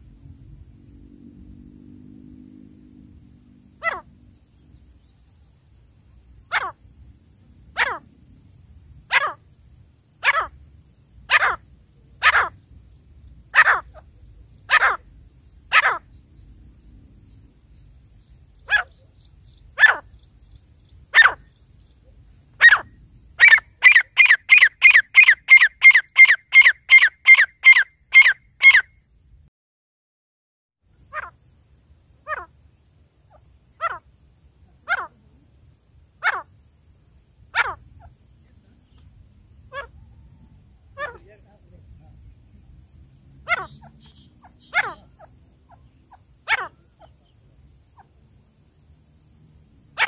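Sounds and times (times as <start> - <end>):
francolin calling: 2.8 - 29.0, 30.9 - 48.9.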